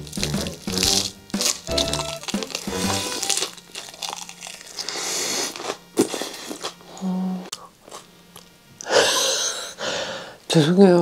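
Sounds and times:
crunchy lettuce chewing: 0:00.0 - 0:08.5.

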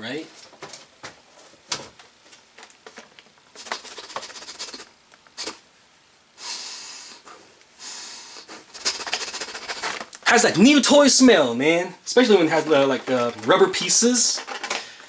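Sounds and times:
plastic packaging crinkling: 0:02.2 - 0:04.5, 0:12.6 - 0:15.0
person sniffing: 0:03.5 - 0:05.6, 0:06.4 - 0:10.0.

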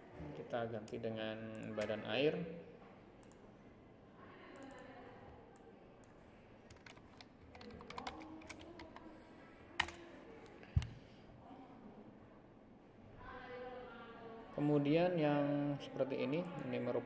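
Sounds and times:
typing on computer keyboard: 0:06.7 - 0:09.1, 0:09.8 - 0:10.0.

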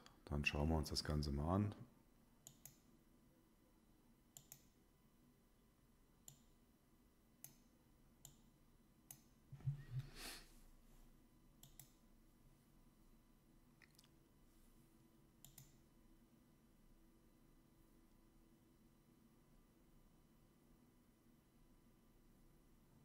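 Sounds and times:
computer mouse clicks: 0:02.4 - 0:02.9, 0:04.4 - 0:04.8, 0:06.2 - 0:06.5, 0:07.4 - 0:08.5, 0:09.1 - 0:09.3, 0:11.6 - 0:12.0, 0:15.4 - 0:15.8.

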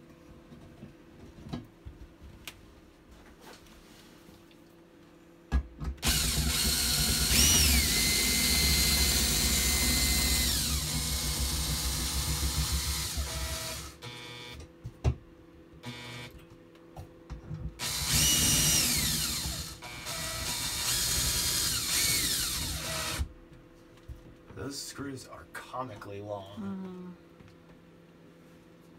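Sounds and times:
cordless drill whine: 0:06.0 - 0:14.6, 0:15.8 - 0:16.3, 0:17.8 - 0:23.3.

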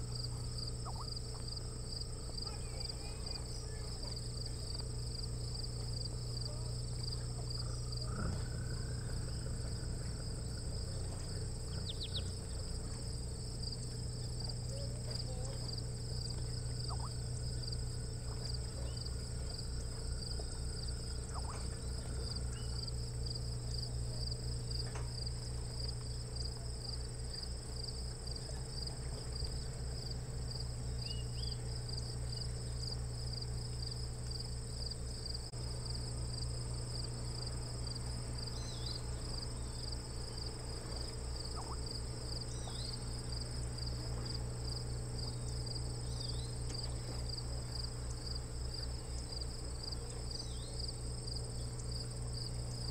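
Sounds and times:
insects trilling: 0:00.0 - 0:52.9
low hum: 0:00.0 - 0:52.9
faint bird chirps: 0:00.7 - 0:01.6, 0:07.4 - 0:12.8, 0:14.6 - 0:23.1, 0:31.0 - 0:31.6, 0:38.5 - 0:39.9, 0:41.0 - 0:43.1.

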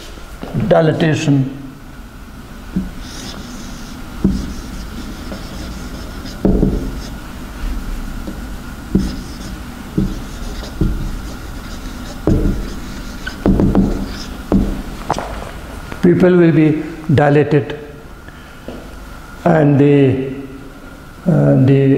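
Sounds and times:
faint high hum: 0:00.0 - 0:21.9
marker knocking against board: 0:02.7 - 0:07.2, 0:08.2 - 0:15.5
marker squeaking on whiteboard: 0:02.8 - 0:07.2, 0:08.2 - 0:15.1.

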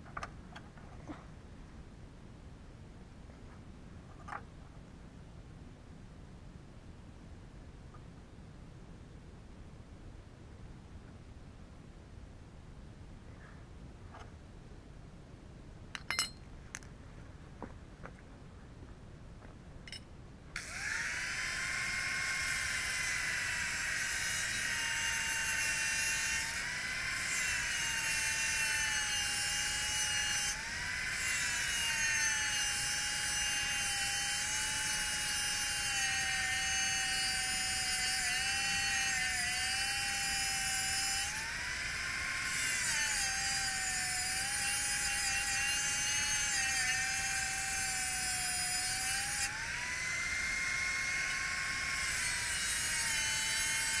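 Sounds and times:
angle grinder cutting metal: 0:20.6 - 0:54.0.

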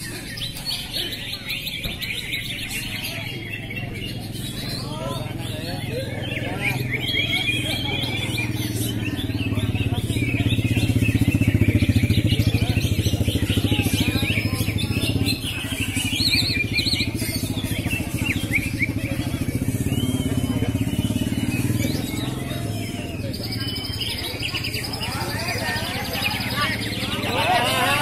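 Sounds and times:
birds chirping and whistling: 0:00.0 - 0:28.0
small engine running: 0:03.5 - 0:28.0.

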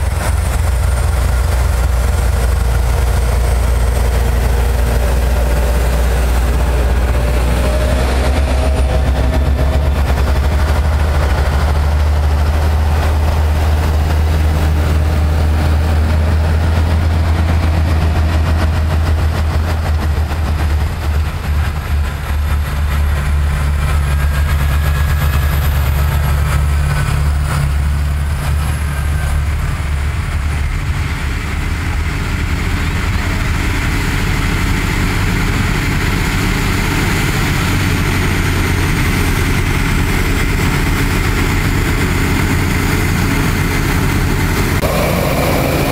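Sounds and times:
tractor engines under load: 0:00.0 - 0:45.9.

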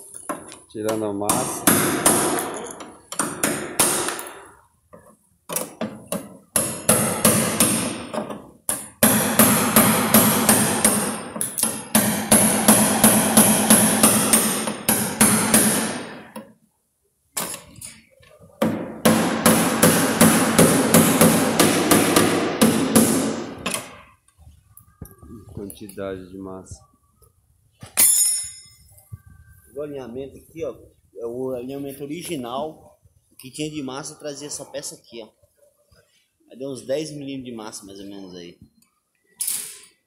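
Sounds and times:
hand tool chipping filler: 0:19.0 - 0:23.5.

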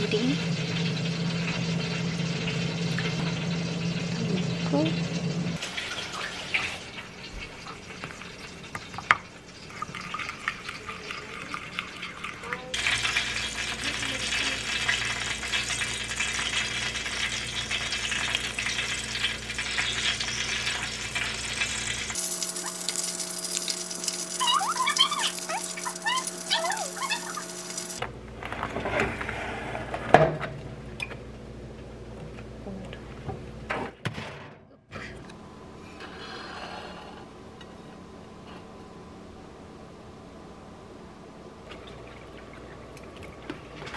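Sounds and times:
pork sizzling: 0:00.0 - 0:28.0
oven fan humming: 0:00.0 - 0:33.8, 0:35.0 - 0:43.9.

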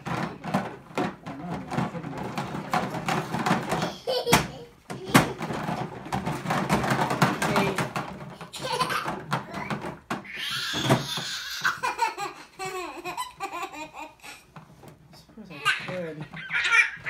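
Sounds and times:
plastic toy rattling: 0:00.0 - 0:12.0
toddler laughing: 0:03.8 - 0:05.5, 0:08.4 - 0:09.7, 0:10.3 - 0:14.4, 0:15.6 - 0:17.0.

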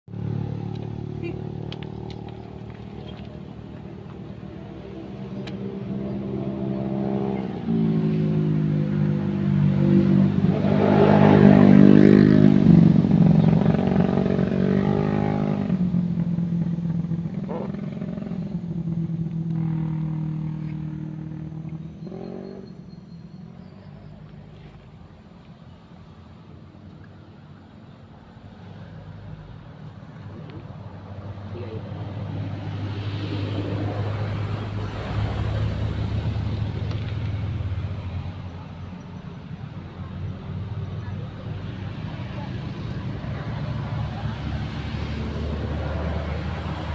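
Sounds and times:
motor engine humming: 0:00.1 - 0:09.4.

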